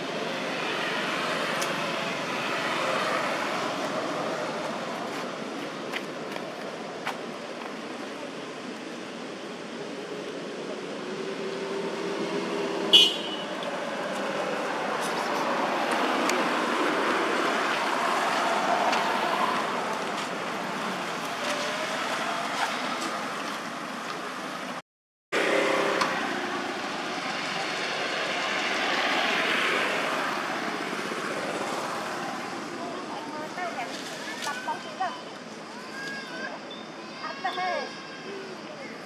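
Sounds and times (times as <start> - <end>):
passing traffic: 0.0 - 39.0.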